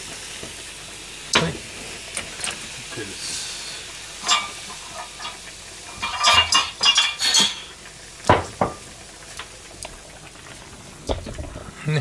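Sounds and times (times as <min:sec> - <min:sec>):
utensil scraping frying pan: 0:04.2 - 0:07.8.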